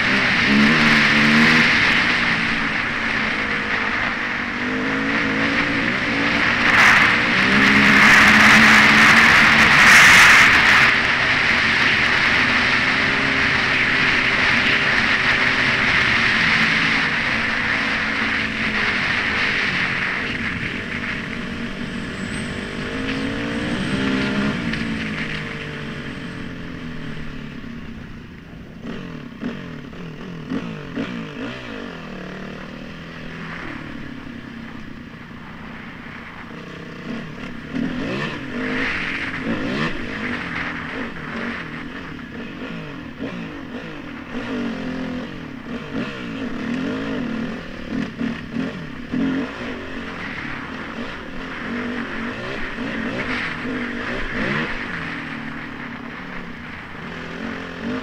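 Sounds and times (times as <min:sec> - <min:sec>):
dirt bike engine revving: 0:00.0 - 0:28.0, 0:28.6 - 0:58.0
wind rush on microphone: 0:00.0 - 0:28.7.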